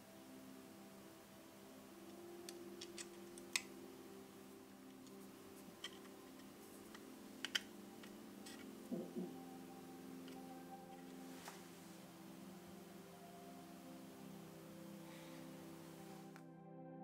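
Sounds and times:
soft background music: 0.0s - 17.0s
plastic model parts clicking: 2.5s - 3.7s, 5.8s - 8.7s.

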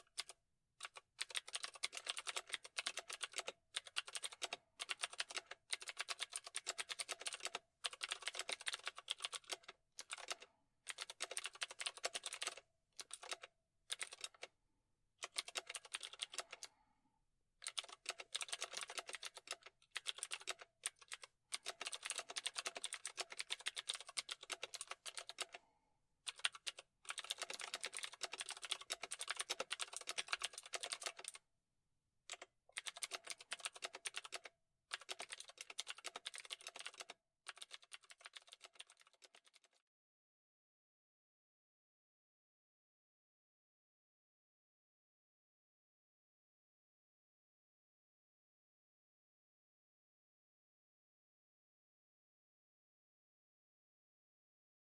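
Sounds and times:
fast keyboard typing: 0.0s - 14.5s, 15.2s - 16.7s, 17.6s - 25.6s, 26.3s - 31.4s, 32.3s - 39.8s.

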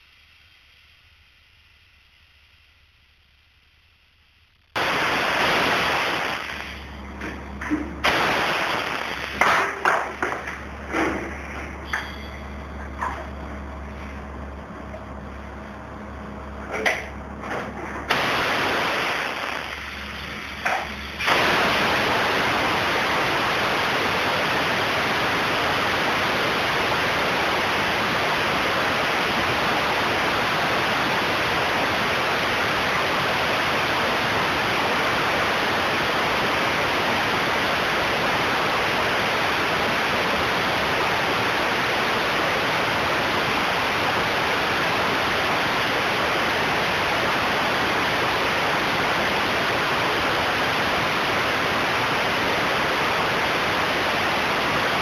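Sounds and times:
spray gun hissing: 4.8s - 6.9s, 8.0s - 10.5s, 18.1s - 55.0s.

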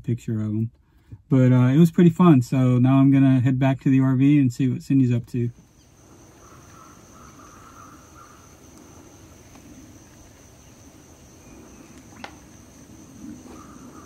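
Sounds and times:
high-pitched insect trill: 5.6s - 14.0s
sharp tick: 11.9s - 12.4s.

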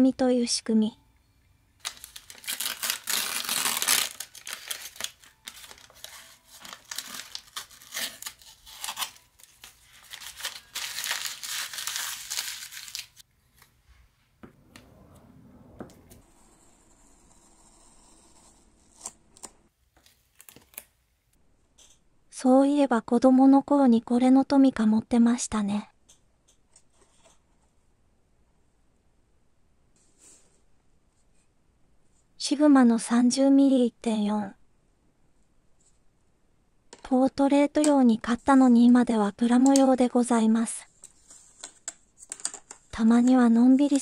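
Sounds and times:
paper and tape crinkling and tearing: 1.8s - 13.2s, 19.4s - 20.9s.

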